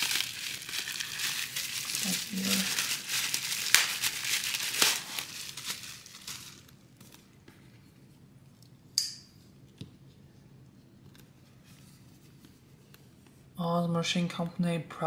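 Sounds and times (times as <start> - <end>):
bubble wrap crinkling: 0.0 - 7.5.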